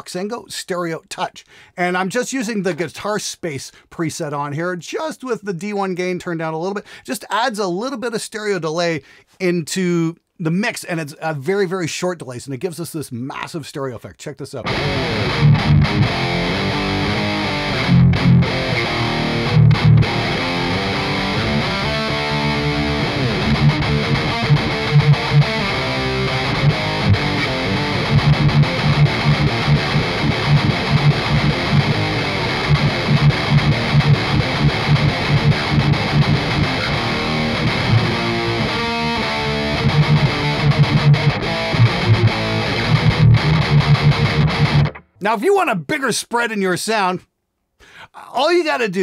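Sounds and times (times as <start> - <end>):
distorted electric guitar riffs: 14.6 - 45.2.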